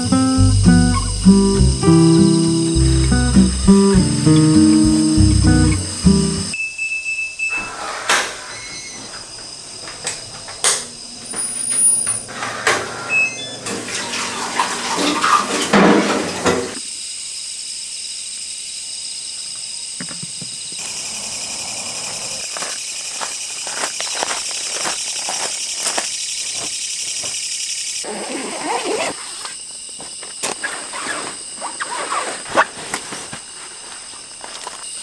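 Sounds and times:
dishes clinking in sink: 11.3s - 16.7s
tap water running: 12.3s - 16.8s.

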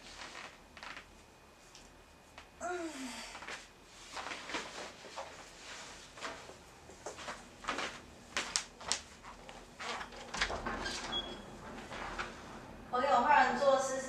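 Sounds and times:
scuffing footsteps: 6.1s - 9.5s.

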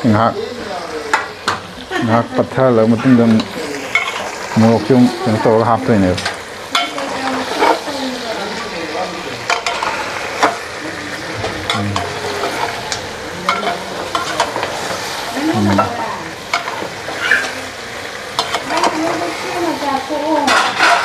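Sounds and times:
meat sizzling in a pot: 0.0s - 21.0s
metal spatula scraping a pot: 9.5s - 10.5s.

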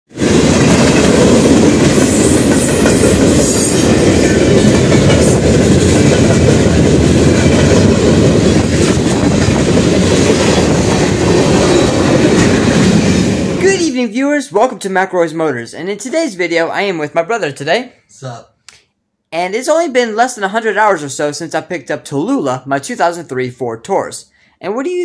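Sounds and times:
freight train rumbling past: 0.1s - 13.9s
train wheels clacking: 0.2s - 13.6s.

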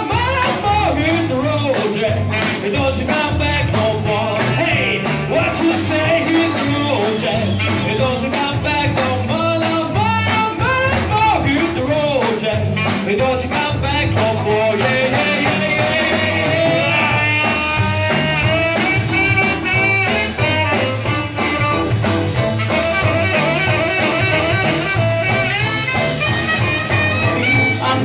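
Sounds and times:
person singing: 0.0s - 19.0s, 26.9s - 28.0s
double bass: 0.0s - 28.0s
drums playing steady beat: 0.0s - 28.0s
electric guitar: 0.0s - 28.0s
keyboard: 0.0s - 28.0s
tenor saxophone: 15.6s - 28.0s.

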